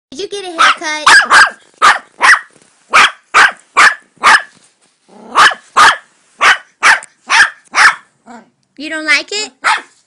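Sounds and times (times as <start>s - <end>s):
puppy yapping: 0.6s - 4.6s, 5.2s - 8.5s, 9.6s - 10.0s.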